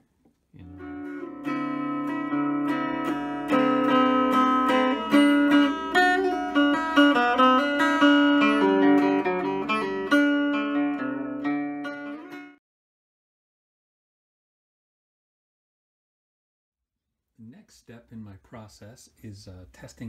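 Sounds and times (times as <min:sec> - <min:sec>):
archtop guitar picked chords: 0:00.6 - 0:12.6.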